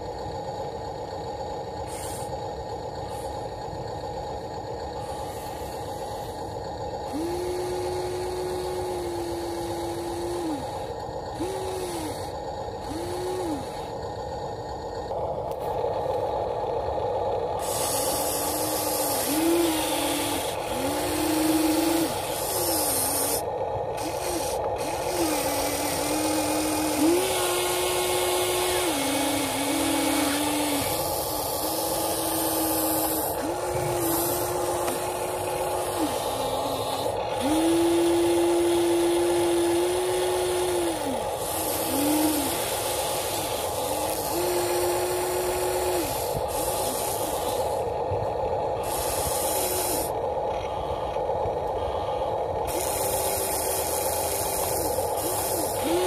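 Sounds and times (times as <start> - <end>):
electric motors whining: 0.0 - 56.0
steady hum and hiss: 0.0 - 56.0.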